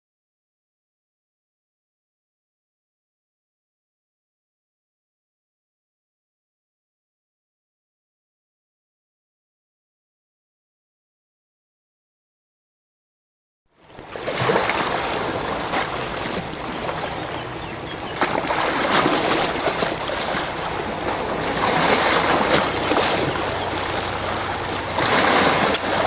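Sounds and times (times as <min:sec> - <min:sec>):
waves breaking: 0:13.8 - 0:26.0.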